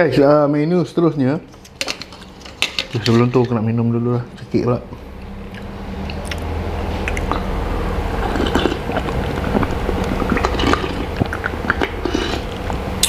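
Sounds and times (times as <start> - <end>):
steady low hum: 0.0 - 13.0
swallowing: 4.2 - 13.0.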